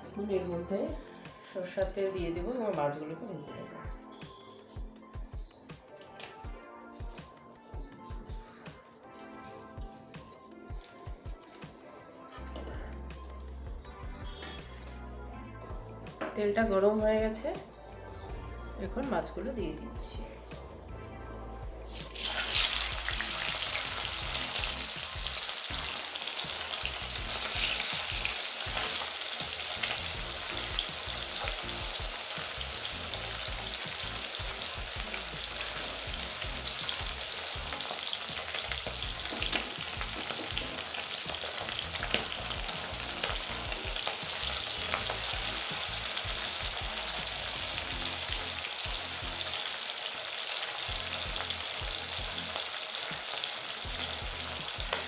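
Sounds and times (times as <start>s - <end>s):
fish frying in hot oil: 21.9s - 55.0s.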